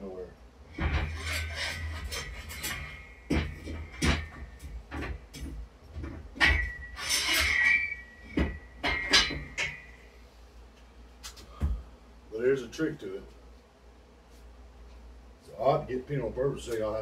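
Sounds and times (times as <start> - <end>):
steel chains clanking: 0.7 - 5.5, 6.4 - 10.0.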